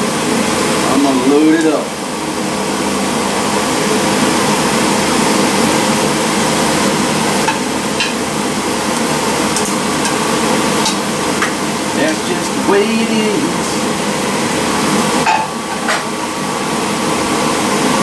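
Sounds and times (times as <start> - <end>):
exhaust fan whirring: 0.0 - 18.0
food sizzling on a grill: 3.6 - 16.6.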